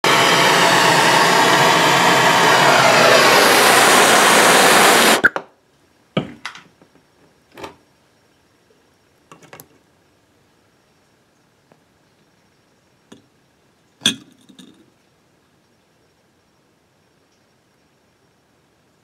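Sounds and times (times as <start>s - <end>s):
torch hissing: 0.0s - 5.3s.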